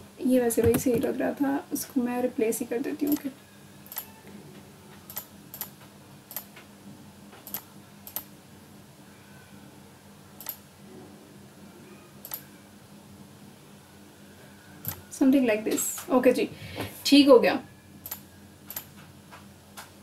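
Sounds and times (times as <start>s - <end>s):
faint steady hum: 0.0s - 20.0s
computer mouse clicking: 5.1s - 5.7s, 7.4s - 8.3s, 10.4s - 10.6s, 12.2s - 12.4s, 18.0s - 18.9s.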